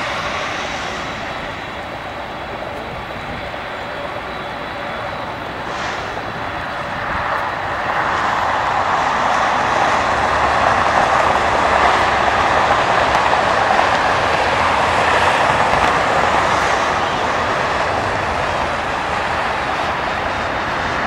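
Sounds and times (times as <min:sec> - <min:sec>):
distant jet engines roaring: 0:00.0 - 0:21.0.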